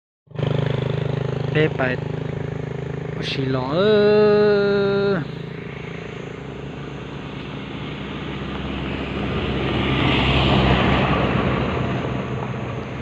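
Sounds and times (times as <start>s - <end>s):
motorcycle engine approaching: 0.3s - 13.0s
person calling out: 3.3s - 5.3s.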